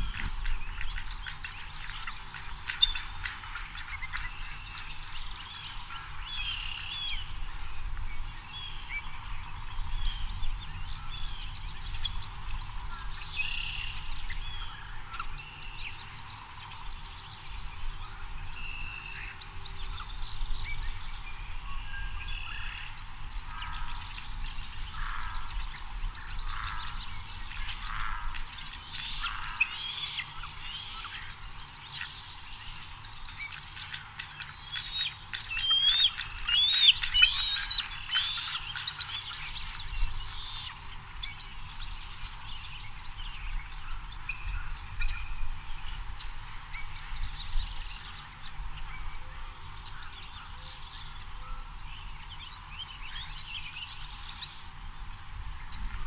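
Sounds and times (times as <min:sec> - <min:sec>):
eagle chittering whistled calls: 0:00.0 - 0:07.3, 0:26.2 - 0:49.1
high bird calls: 0:00.0 - 0:07.8, 0:21.4 - 0:56.0.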